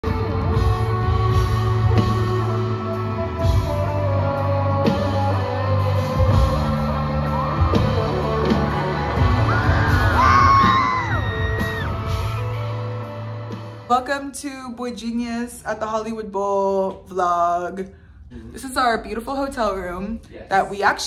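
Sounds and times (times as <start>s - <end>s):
rock music with singing: 0.0s - 13.9s.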